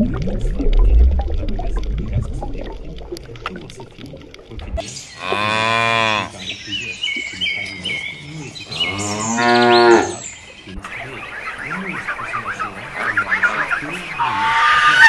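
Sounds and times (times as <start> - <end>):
cow mooing: 5.2 - 6.4, 8.7 - 10.2.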